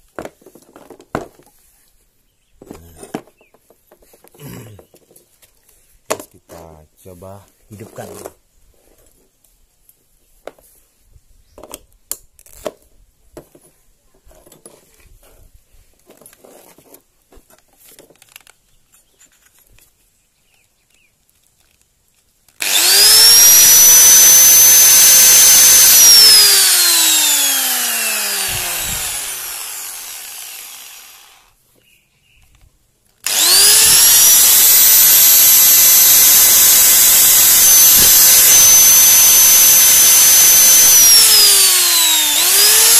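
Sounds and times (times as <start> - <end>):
angle grinder whining: 22.6 - 31.6, 33.2 - 42.9.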